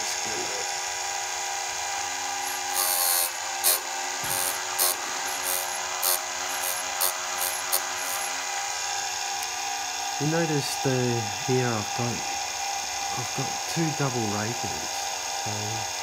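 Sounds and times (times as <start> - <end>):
electric sharpener motor hum: 2.2 - 8.4
high grinding rasps: 2.4 - 8.4.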